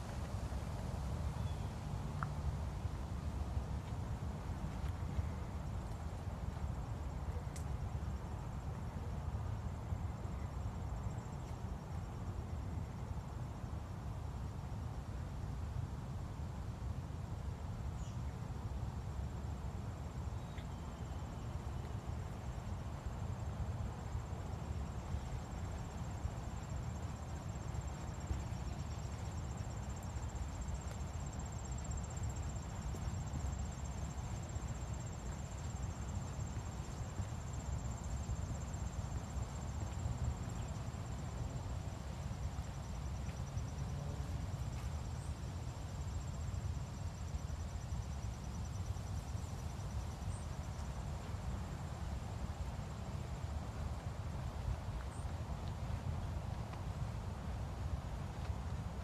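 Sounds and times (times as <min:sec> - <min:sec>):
lower insect trill: 0:20.3 - 0:51.6
insects trilling: 0:24.0 - 0:51.0.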